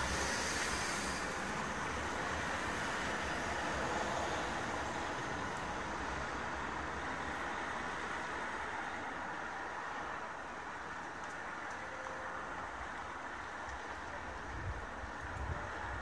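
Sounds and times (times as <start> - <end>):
distant road traffic: 0.0 - 16.0.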